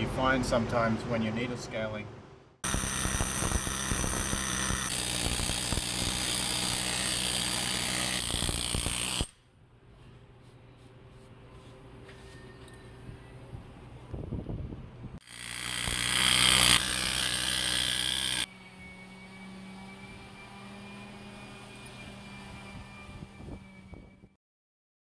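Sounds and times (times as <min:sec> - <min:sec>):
loud noisy machine: 0:02.6 - 0:09.3, 0:15.2 - 0:24.2
low hum with high whine: 0:07.7 - 0:17.3, 0:18.3 - 0:24.4.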